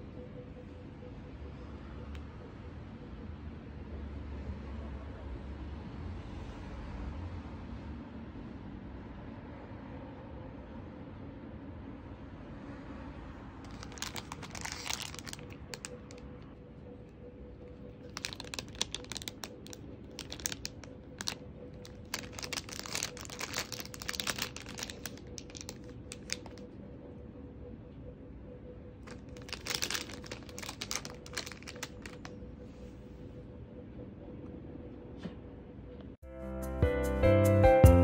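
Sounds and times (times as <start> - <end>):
faint steady hum: 0.0 - 5.6, 7.7 - 36.2
plastic packaging crinkling: 13.6 - 16.3, 18.0 - 26.6, 29.1 - 32.3.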